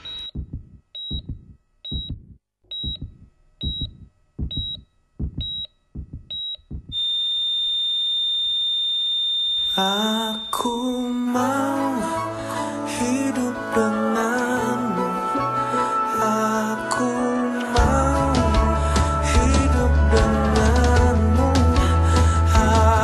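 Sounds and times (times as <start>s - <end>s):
long flatline beep: 0.0s - 0.3s, 7.0s - 11.0s
heart monitor beeps: 0.0s - 10.8s
low heartbeat thud: 0.1s - 7.0s
music: 11.0s - 23.0s.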